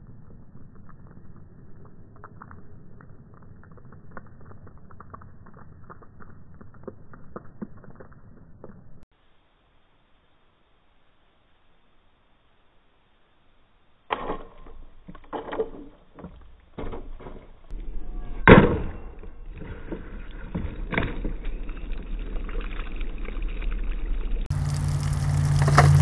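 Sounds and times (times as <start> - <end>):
deep hum: 17.7 - 26.0.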